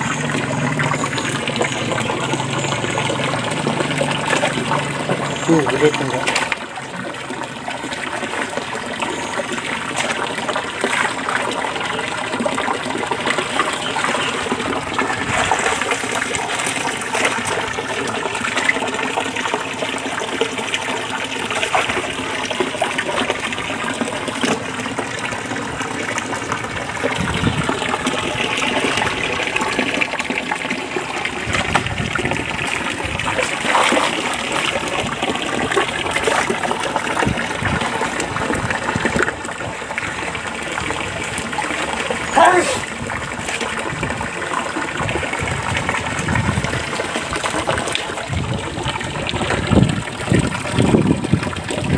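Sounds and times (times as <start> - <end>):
net splashing in water: 0.0 - 7.1, 13.2 - 19.5, 20.5 - 24.6, 31.4 - 39.7
running water rushing: 0.0 - 51.9.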